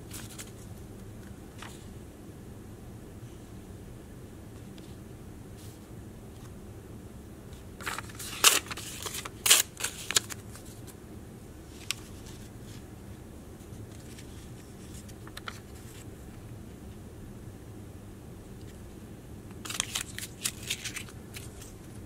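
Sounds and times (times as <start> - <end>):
paper rustling: 0.1 - 0.7, 7.8 - 11.0, 11.7 - 12.8, 13.6 - 16.1, 19.6 - 22.0.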